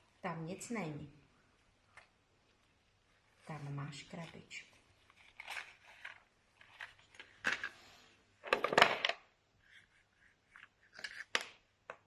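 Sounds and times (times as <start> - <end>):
toy drawing board clicking and scraping: 10.1 - 11.5.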